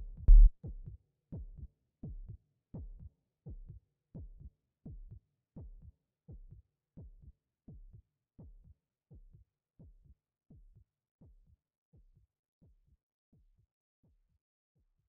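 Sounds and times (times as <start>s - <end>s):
heartbeat thumps: 0.0s - 0.6s.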